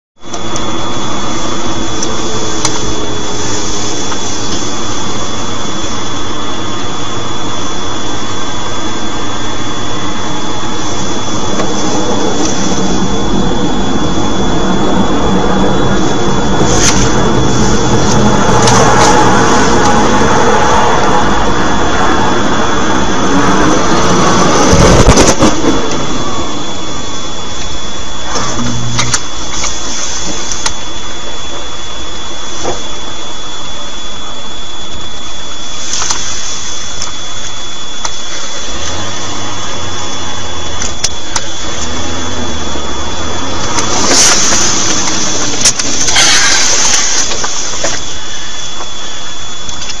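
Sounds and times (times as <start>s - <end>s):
vehicle engine and road noise: 0.2s - 31.7s, 37.0s - 50.0s
hiss bursts: 43.8s - 49.4s.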